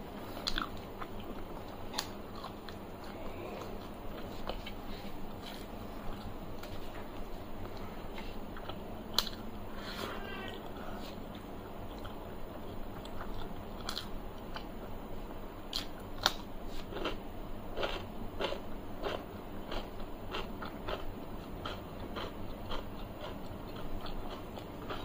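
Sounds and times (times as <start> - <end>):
wet chewing: 0.2 - 9.4, 17.8 - 25.0.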